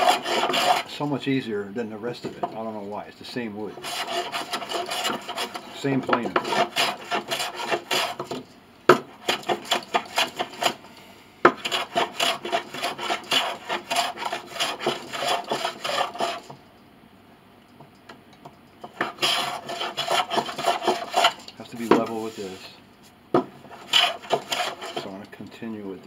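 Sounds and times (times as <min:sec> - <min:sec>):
hand plane shaving wood: 0:00.0 - 0:01.0, 0:03.8 - 0:08.4, 0:09.2 - 0:10.8, 0:11.5 - 0:16.5, 0:18.9 - 0:22.7, 0:23.7 - 0:25.2.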